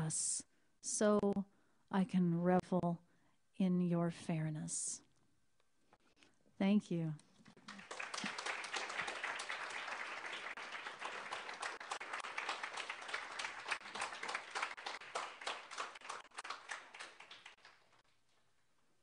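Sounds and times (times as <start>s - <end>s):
audience applauding: 7.5s - 18.3s.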